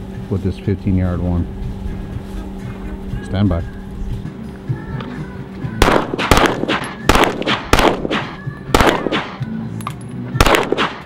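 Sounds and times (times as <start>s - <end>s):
handgun shots: 5.8s - 11.0s.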